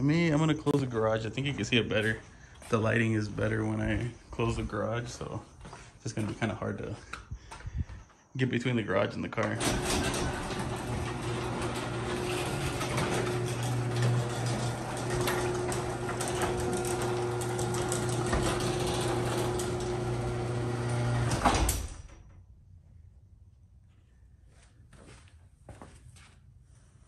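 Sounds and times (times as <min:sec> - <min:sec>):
garage door motor humming: 0:09.5 - 0:22.1
garage door shutting thump: 0:09.6 - 0:22.3.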